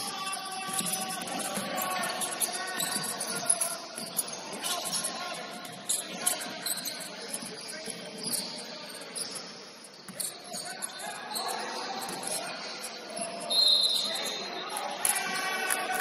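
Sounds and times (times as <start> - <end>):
sneakers squeaking: 0.0 - 15.4
hubbub of the hall: 0.0 - 16.0.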